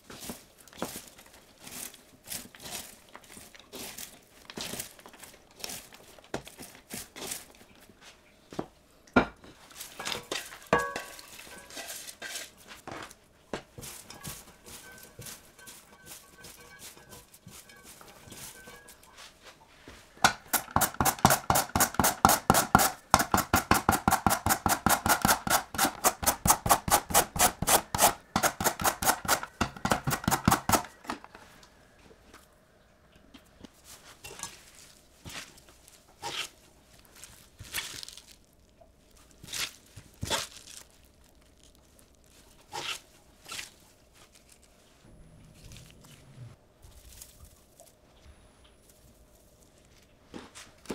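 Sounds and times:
cabbage rustling: 0.0 - 8.2, 9.4 - 23.1, 33.6 - 48.2.

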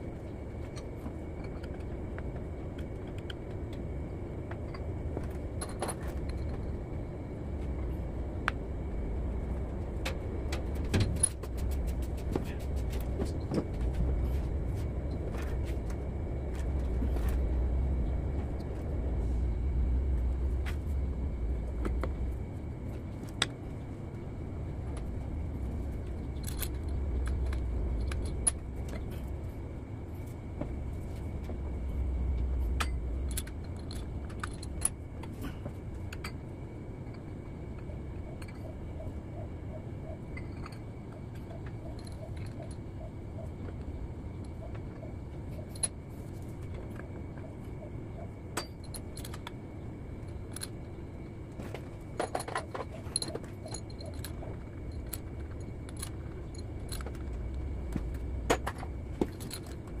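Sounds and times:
low shop hum: 0.0 - 60.0
metal clinks and taps: 52.2 - 60.0.

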